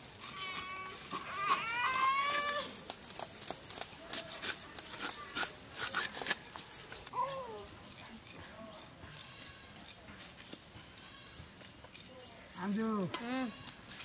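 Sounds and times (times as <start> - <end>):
high-pitched animal call: 0.2 - 2.8.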